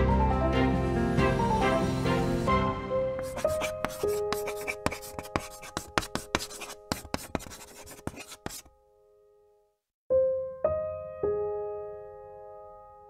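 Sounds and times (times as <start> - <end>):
pen scratching handwriting: 3.2 - 8.7
piano notes: 10.1 - 13.0.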